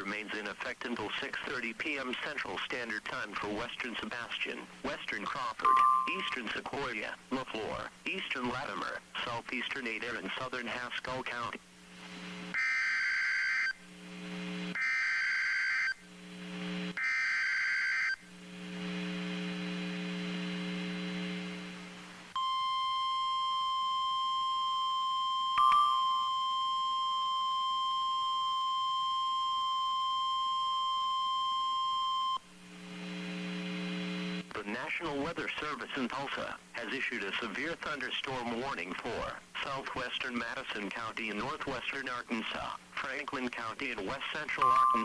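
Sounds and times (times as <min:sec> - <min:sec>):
steady alarm beep: 0:05.7 - 0:06.4, 0:44.6 - 0:45.0
steady low hum: 0:11.5 - 0:12.5, 0:13.8 - 0:14.8, 0:16.0 - 0:17.0, 0:18.2 - 0:22.4, 0:32.4 - 0:35.0
low buzz: 0:18.4 - 0:22.2, 0:32.6 - 0:34.5.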